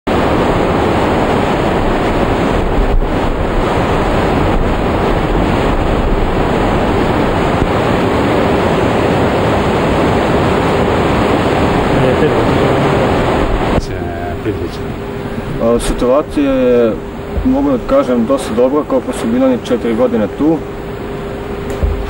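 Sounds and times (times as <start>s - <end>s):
waterfalls rushing: 0.1s - 20.4s.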